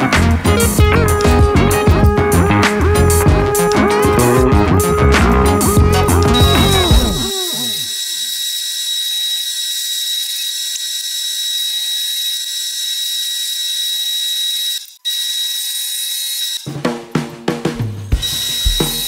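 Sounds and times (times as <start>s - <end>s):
drill press high-pitched whine: 6.3s - 16.6s, 18.2s - 19.0s.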